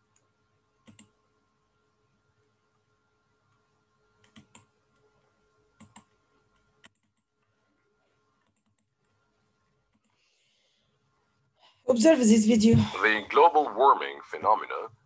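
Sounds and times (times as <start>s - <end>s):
faint steady hum: 0.0s - 15.0s
computer mouse clicks: 0.1s - 1.2s, 4.2s - 5.1s, 5.8s - 7.6s, 8.4s - 9.2s, 9.9s - 10.2s.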